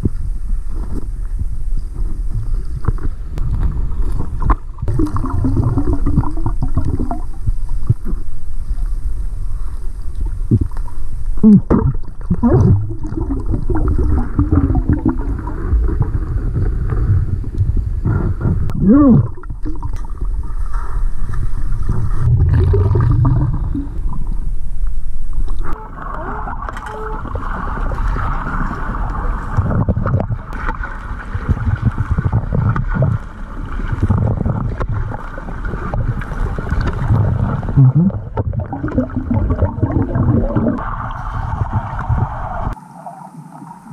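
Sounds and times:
steady underwater hiss: 0:00.0 - 0:37.8, 0:38.6 - 0:43.9
underwater rumble: 0:00.0 - 0:43.9
water gurgling and bubbles: 0:00.0 - 0:43.9.

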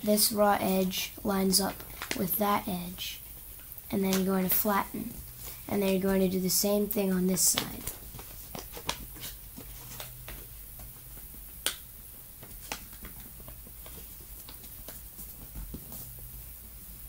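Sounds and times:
paper folding crackles: 0:07.3 - 0:11.8, 0:12.4 - 0:16.2.

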